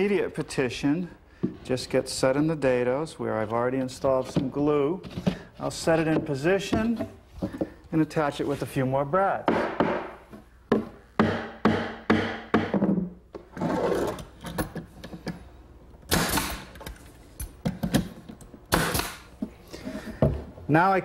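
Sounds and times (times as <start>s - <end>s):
pneumatic brad nailer firing: 16.1s - 17.0s, 18.7s - 19.3s.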